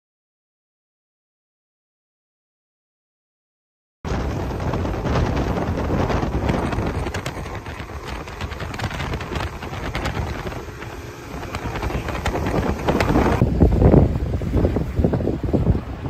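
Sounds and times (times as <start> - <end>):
hull rushing through choppy water: 4.1 - 16.0
wind buffeting microphone: 4.1 - 16.0.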